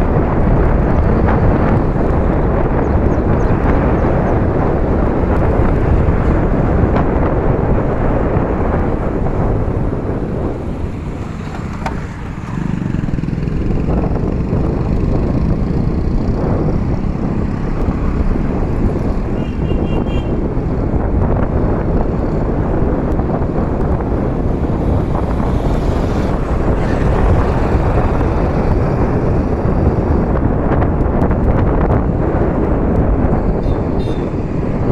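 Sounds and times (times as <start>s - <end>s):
wind buffeting microphone: 0.0s - 34.9s
tyre noise: 10.4s - 13.2s
motor scooter engine running: 10.4s - 18.4s.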